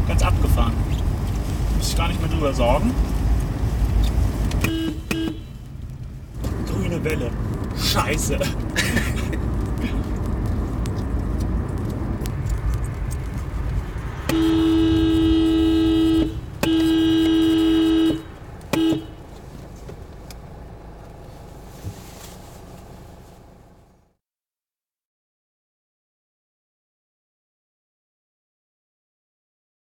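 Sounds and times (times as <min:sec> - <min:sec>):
road and engine rumble: 0:00.0 - 0:24.1
car horn honking: 0:04.6 - 0:05.7, 0:14.2 - 0:19.4.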